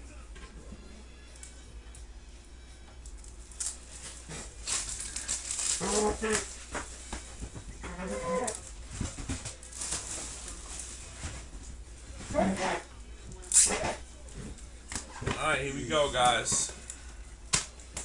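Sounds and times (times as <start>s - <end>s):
plastic wrapping tearing and crinkling: 3.3s - 7.1s, 7.9s - 11.5s, 12.5s - 14.0s.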